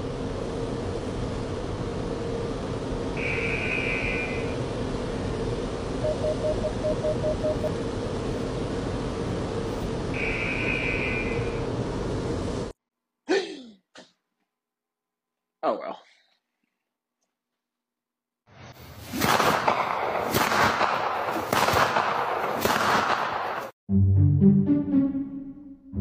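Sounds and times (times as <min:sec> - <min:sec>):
mechanical fan hum: 0:00.0 - 0:12.8
long high electronic tones: 0:03.2 - 0:04.6, 0:06.0 - 0:07.7
quick beeps: 0:06.0 - 0:07.7.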